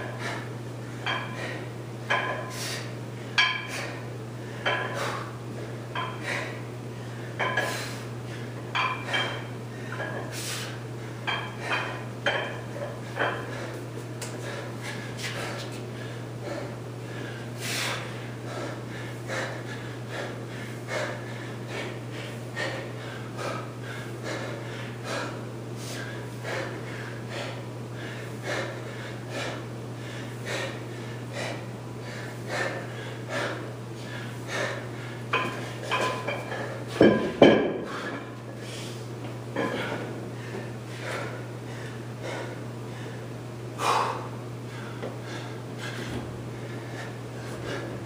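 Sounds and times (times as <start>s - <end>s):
man breathing hard: 0.0s - 12.1s, 12.7s - 48.0s
steady low hum: 0.0s - 48.0s
dumbbell clunking on floor: 35.3s - 38.2s.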